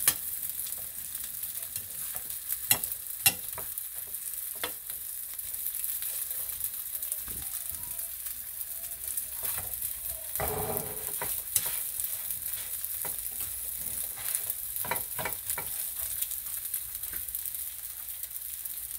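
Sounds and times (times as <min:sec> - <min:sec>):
squid sizzling in hot oil: 0:00.0 - 0:18.9
metal tongs scraping pan: 0:10.4 - 0:11.9.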